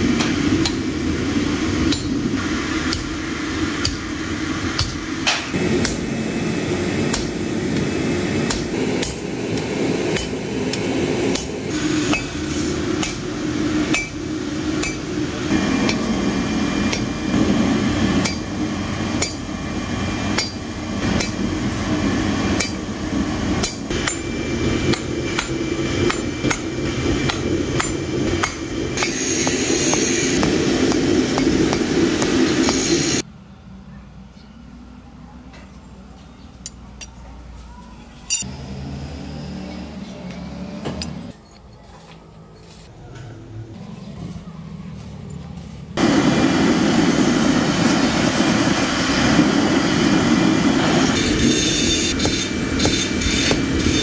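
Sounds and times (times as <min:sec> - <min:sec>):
hammer striking steel on anvil: 0:00.2 - 0:01.0, 0:01.8 - 0:02.2, 0:02.9 - 0:03.2, 0:03.8 - 0:04.1, 0:04.7 - 0:06.1, 0:07.1 - 0:16.2, 0:16.9 - 0:17.3, 0:18.2 - 0:19.5, 0:20.3 - 0:21.6, 0:22.6 - 0:22.9, 0:23.6 - 0:33.2, 0:38.3 - 0:38.5, 0:51.2 - 0:54.0.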